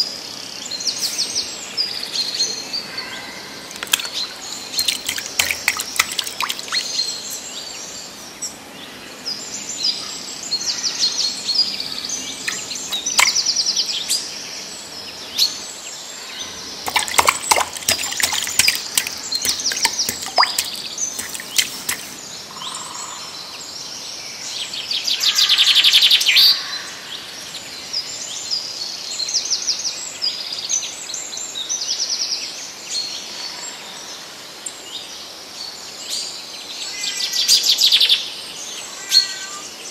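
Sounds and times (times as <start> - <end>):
clicks and knocks in muddy water: 3.7 - 7.0, 12.4 - 13.5, 16.9 - 22.2.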